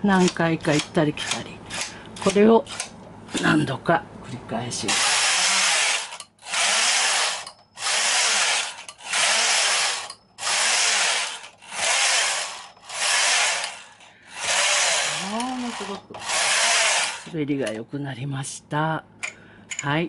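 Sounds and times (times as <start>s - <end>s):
knitting machine carriage sliding: 4.9s - 17.3s.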